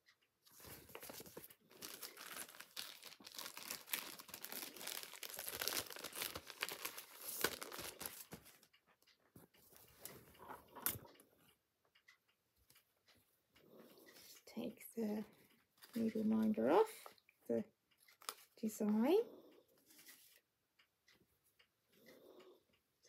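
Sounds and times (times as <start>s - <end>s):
fabric crinkling and rustling: 0.5s - 8.7s
sharp crackle: 1.7s - 8.2s.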